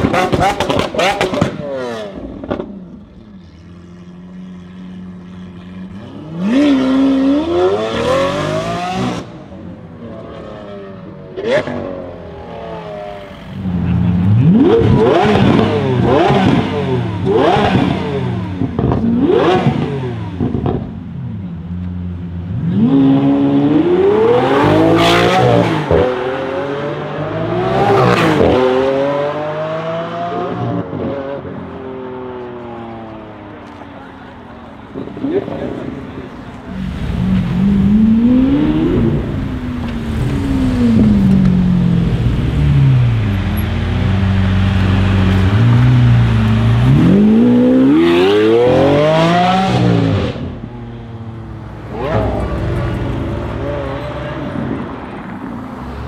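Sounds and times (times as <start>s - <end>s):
car engine revving: 0.0s - 20.9s, 35.0s - 56.0s.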